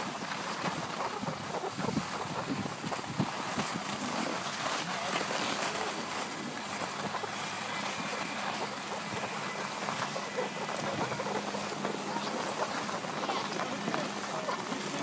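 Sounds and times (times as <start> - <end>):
skis scraping over snow: 0.0 - 15.0
wind on microphone: 0.0 - 15.0
indistinct voices: 4.8 - 15.0.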